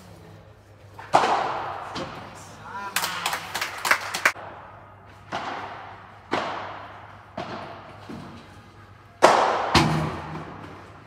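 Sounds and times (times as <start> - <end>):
racket striking ball: 1.0 - 2.2, 4.3 - 8.4, 9.2 - 10.9.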